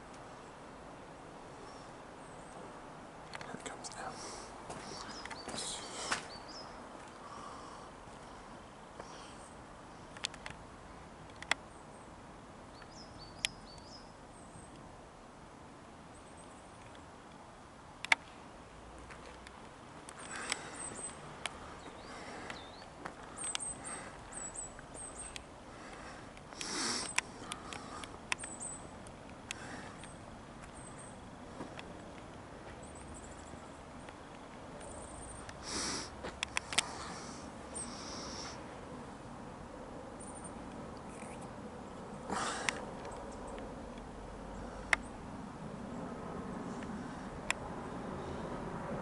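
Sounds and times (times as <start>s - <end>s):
small birds chirping: 0.0s - 14.9s, 16.1s - 17.2s, 19.0s - 39.0s, 40.1s - 48.6s
hissing rustle: 19.4s - 30.8s, 35.4s - 38.7s
airliner passing overhead: 44.2s - 49.0s.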